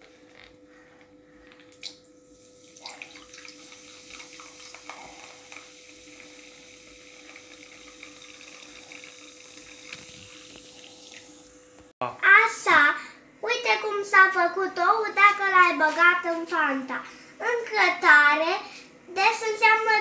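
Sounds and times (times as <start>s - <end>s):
soda pouring and fizzing: 1.8s - 11.6s.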